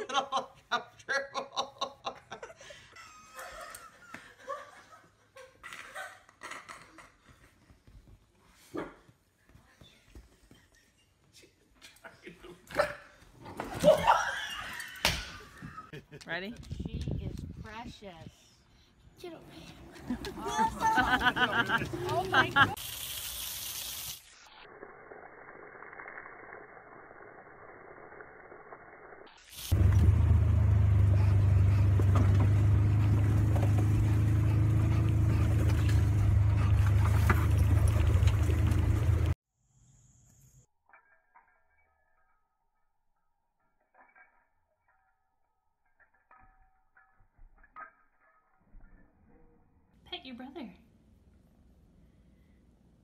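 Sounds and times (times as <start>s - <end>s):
person chuckling and laughing: 0.0s - 7.6s, 11.8s - 13.1s, 13.8s - 16.2s, 20.0s - 22.8s
garden hose spraying: 21.2s - 31.0s.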